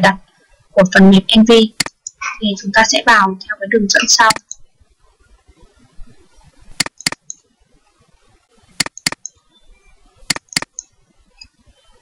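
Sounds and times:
mouse button double-clicks: 0:06.8 - 0:07.4, 0:08.8 - 0:09.3, 0:10.3 - 0:10.8.

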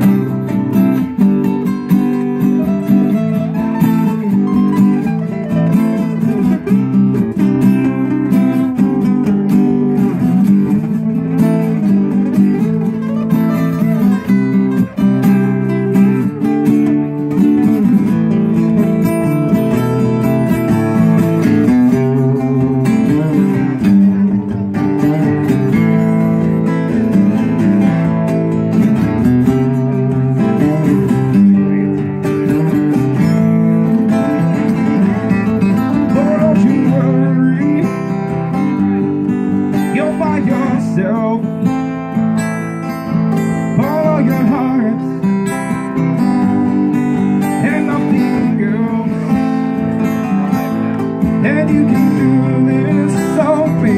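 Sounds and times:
acoustic guitars strumming chords: 0:00.0 - 0:53.9.

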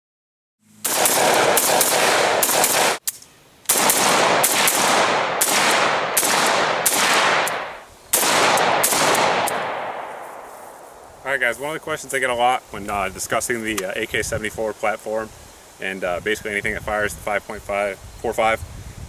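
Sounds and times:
rifle shots echoing: 0:00.8 - 0:03.0, 0:03.7 - 0:11.1.

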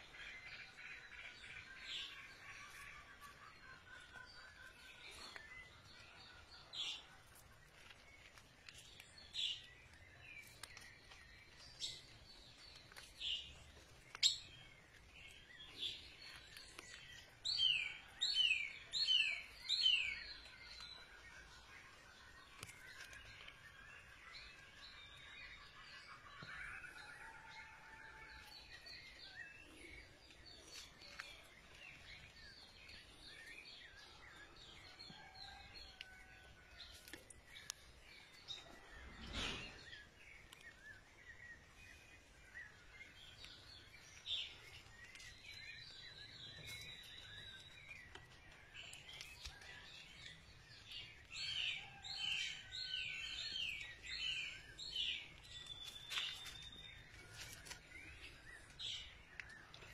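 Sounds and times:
faint outdoor background: 0:00.0 - 0:59.9
songbirds chirping: 0:00.0 - 0:59.9.

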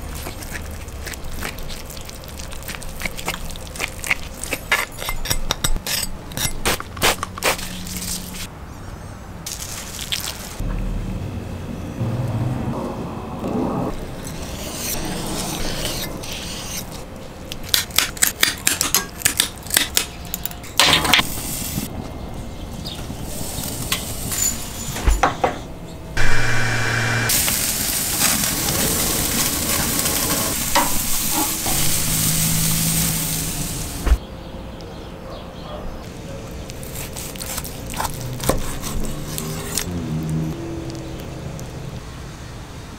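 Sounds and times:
steak sizzling on grill: 0:26.2 - 0:34.1.

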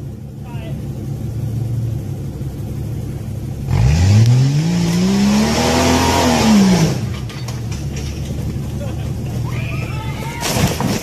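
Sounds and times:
suv engine revving hard: 0:03.7 - 0:07.2.

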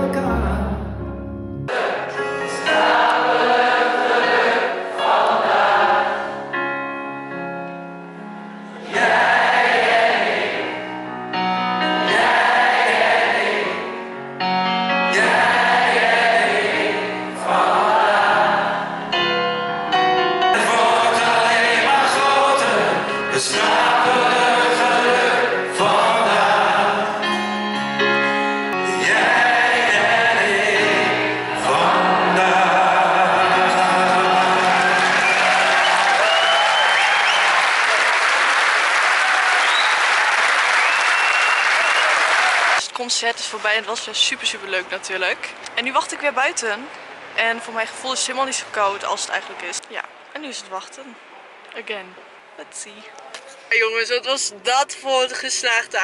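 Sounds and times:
crowd singing along: 0:01.7 - 0:06.6, 0:08.6 - 0:11.0, 0:11.7 - 0:14.2, 0:14.9 - 0:19.2, 0:20.4 - 0:27.8, 0:28.7 - 0:37.4
acoustic guitar: 0:21.8 - 0:35.0.

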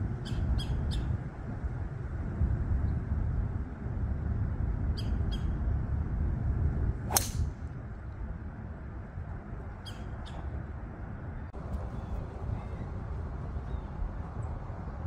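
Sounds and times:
wind rumbling on microphone: 0:00.0 - 0:15.0
golf driver striking ball: 0:07.1 - 0:07.5
bird chirps: 0:09.8 - 0:10.5.

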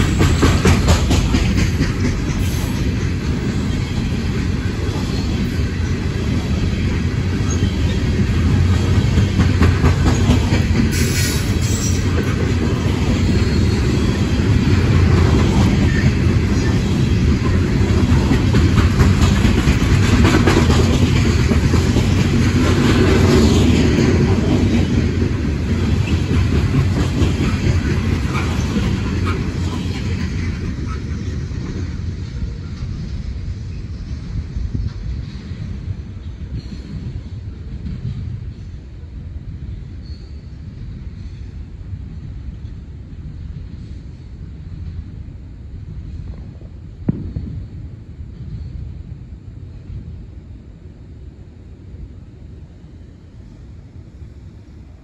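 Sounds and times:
wheels clicking over rail joints: 0:00.0 - 0:03.5, 0:17.4 - 0:30.6
train wheels rumbling on rail: 0:00.0 - 0:55.0.

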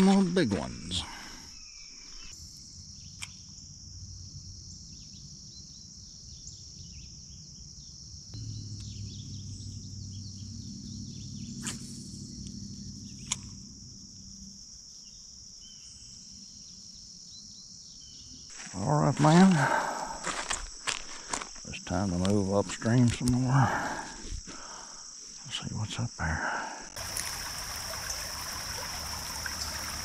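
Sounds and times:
crickets chirping: 0:00.0 - 0:30.0
low rumble: 0:08.4 - 0:13.2.

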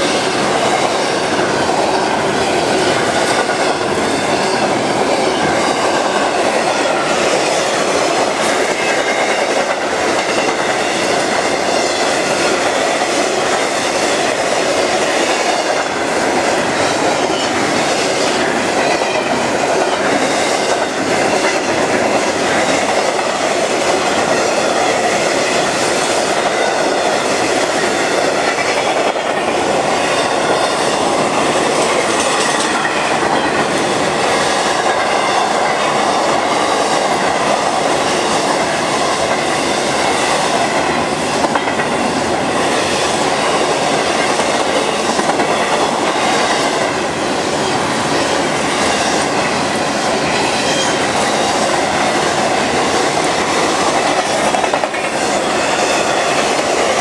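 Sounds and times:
freight train passing: 0:00.0 - 0:57.0.

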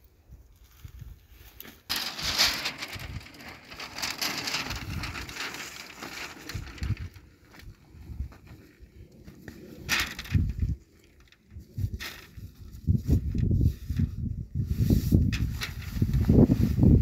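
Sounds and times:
groundsheet crinkling rustle: 0:00.6 - 0:07.8, 0:15.3 - 0:17.0.

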